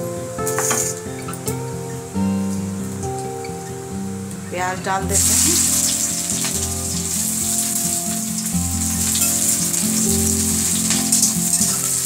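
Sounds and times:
background music: 0:00.0 - 0:12.0
onions sizzling in oil: 0:05.1 - 0:12.0.

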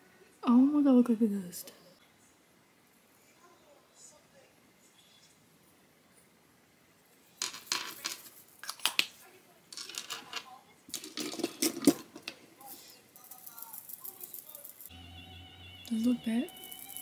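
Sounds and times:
makeup items clattering: 0:09.8 - 0:12.4.

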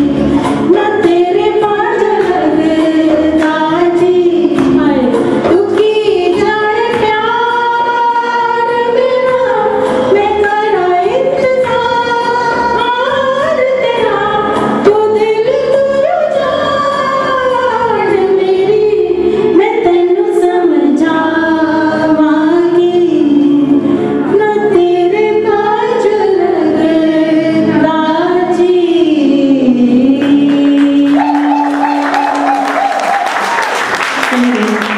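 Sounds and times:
women singing duet: 0:00.0 - 0:33.2
applause: 0:30.2 - 0:34.9.

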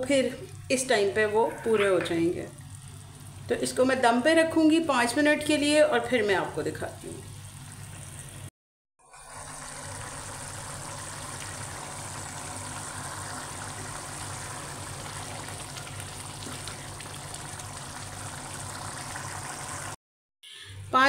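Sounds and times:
lentils sizzling in oil: 0:09.3 - 0:20.0.

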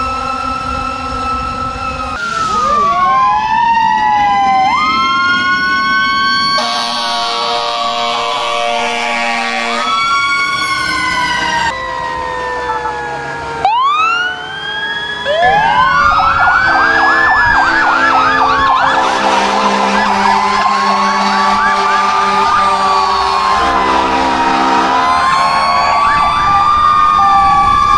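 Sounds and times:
fire engine sirens wailing: 0:00.0 - 0:27.9
air horns blowing: 0:06.4 - 0:11.1, 0:15.5 - 0:26.5.

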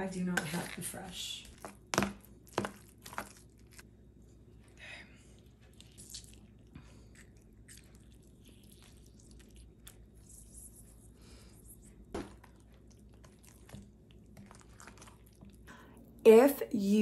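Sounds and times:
lemon squishing: 0:01.4 - 0:03.9, 0:05.4 - 0:11.1.

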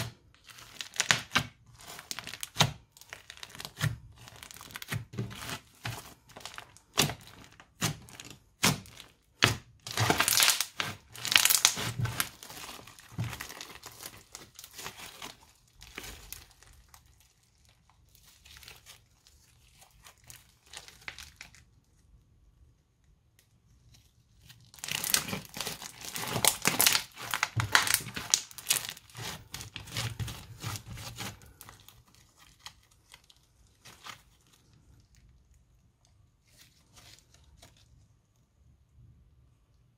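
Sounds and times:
crunchy slime crackling and popping: 0:00.0 - 0:22.2, 0:23.9 - 0:38.0.

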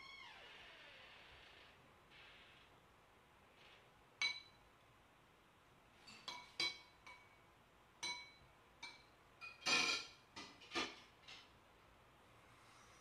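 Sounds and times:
tableware clinking against glass: 0:04.2 - 0:04.6, 0:06.1 - 0:07.4, 0:08.0 - 0:11.0.

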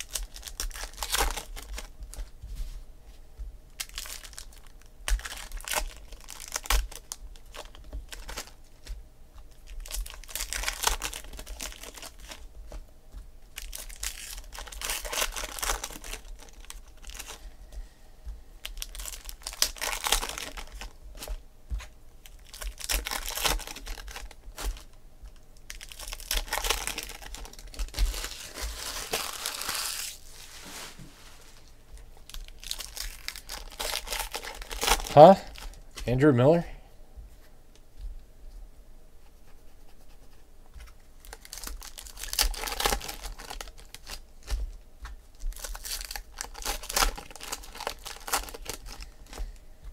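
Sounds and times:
card pack wrappers tearing and crinkling: 0:00.0 - 0:01.9, 0:03.8 - 0:08.6, 0:09.5 - 0:12.5, 0:13.5 - 0:17.4, 0:18.6 - 0:21.4, 0:22.2 - 0:24.9, 0:25.6 - 0:30.8, 0:32.2 - 0:35.8, 0:41.2 - 0:44.6, 0:45.4 - 0:49.5.

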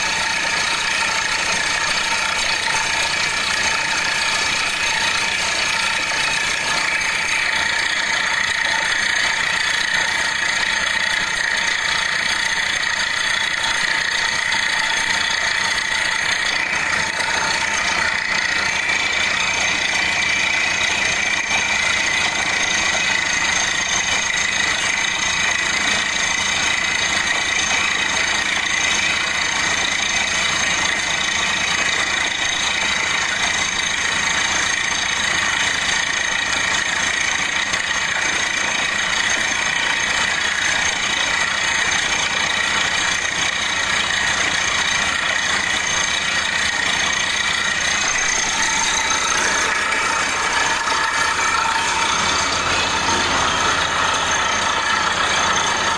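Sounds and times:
drilling rig machine drone: 0:00.0 - 0:55.9
high-pitched whining tones: 0:45.7 - 0:55.9.

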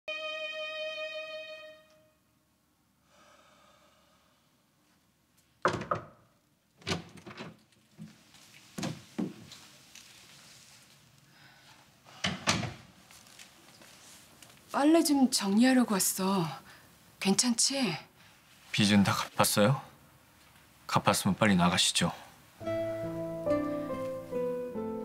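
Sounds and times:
door thuds: 0:05.7 - 0:06.2.

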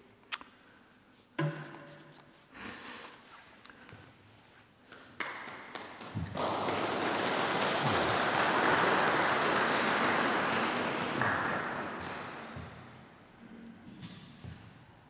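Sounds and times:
congregation applauding: 0:05.2 - 0:12.9.

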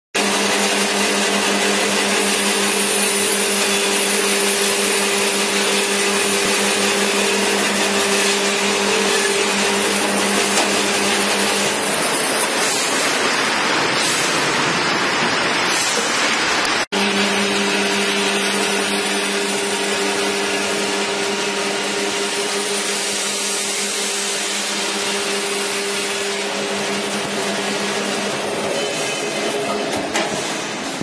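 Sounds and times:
bone saw motor humming: 0:00.2 - 0:13.3
rough harsh saw noise: 0:00.2 - 0:31.0.

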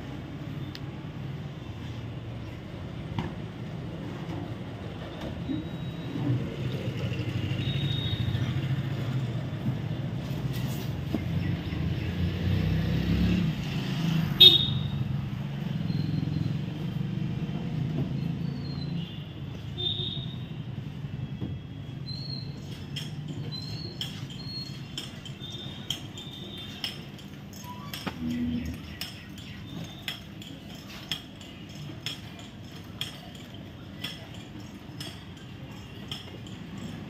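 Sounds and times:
distant road traffic rumble: 0:00.0 - 0:37.0.

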